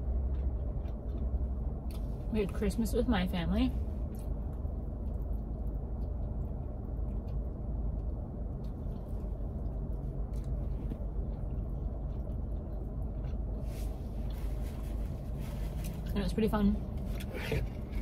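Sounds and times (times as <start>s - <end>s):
person chewing food: 0.0s - 2.3s, 4.0s - 16.0s
low hum inside car: 0.0s - 18.0s.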